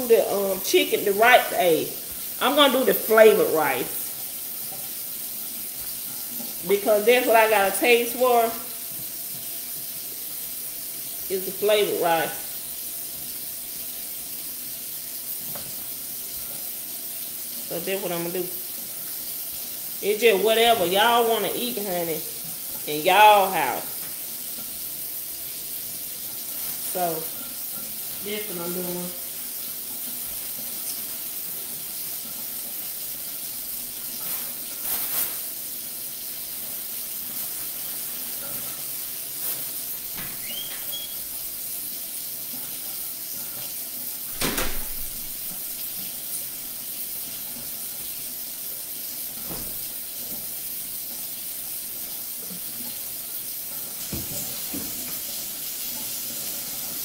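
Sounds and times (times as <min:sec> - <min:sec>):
high-pitched room hiss: 0:00.0 - 0:57.0
refrigerator door opening: 0:40.2 - 0:41.2, 0:44.4 - 0:45.3.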